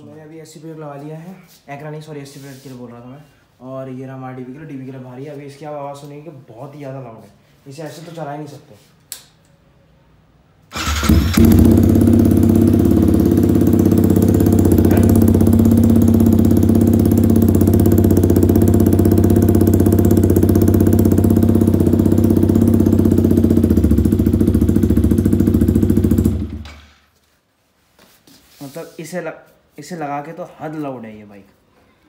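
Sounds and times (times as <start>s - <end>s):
motorcycle engine starting and idling: 10.7s - 27.0s.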